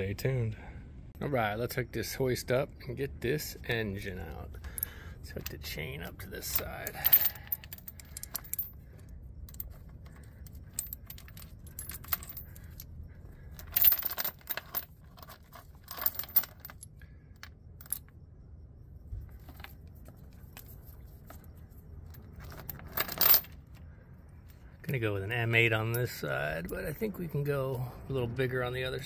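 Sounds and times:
chain clinking and rattling: 4.5 - 18.2, 19.1 - 23.9.

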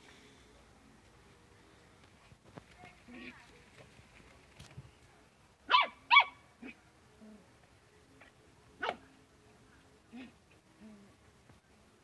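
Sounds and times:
small dogs yapping: 5.7 - 6.8.

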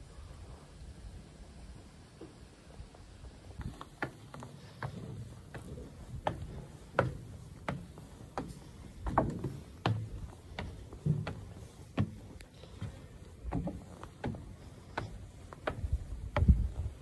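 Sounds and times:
footsteps on wooden stairs: 3.5 - 17.0.

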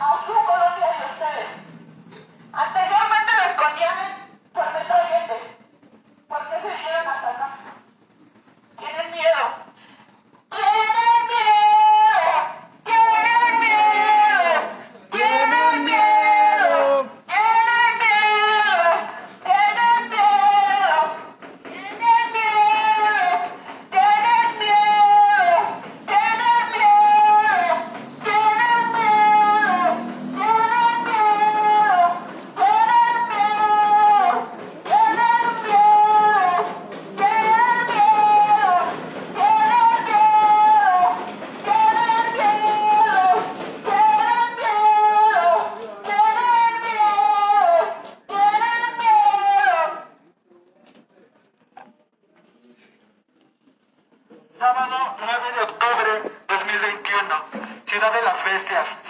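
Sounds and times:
breaths: 9.7 - 10.4.

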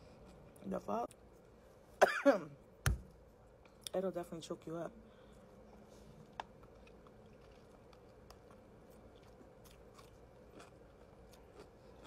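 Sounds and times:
faint chewing: 5.2 - 12.0.

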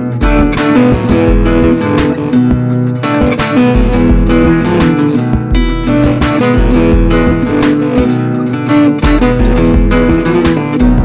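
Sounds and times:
guitar music with bass line: 0.0 - 11.0.

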